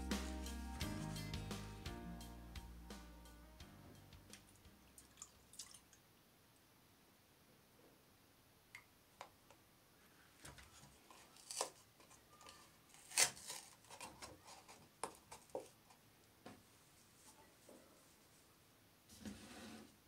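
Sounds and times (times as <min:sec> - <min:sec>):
paper carton crinkling: 0:10.6 - 0:15.7.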